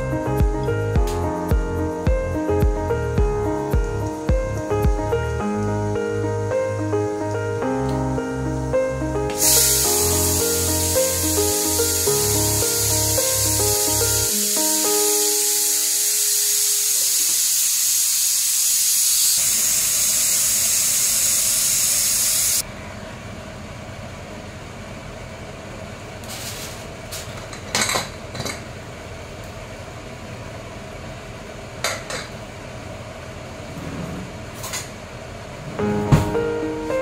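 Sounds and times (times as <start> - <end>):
rice steaming hiss: 9.3 - 22.6.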